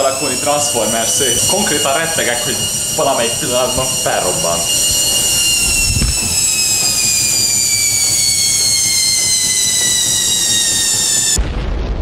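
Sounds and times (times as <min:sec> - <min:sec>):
washing machine whining: 0:00.0 - 0:11.4
low boom: 0:04.6 - 0:12.0.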